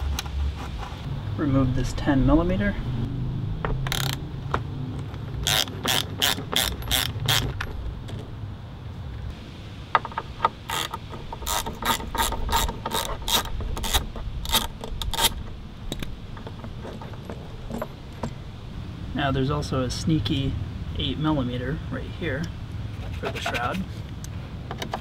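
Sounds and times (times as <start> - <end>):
socket ratchet clicking: 3.9 - 4.2, 5.4 - 7.7.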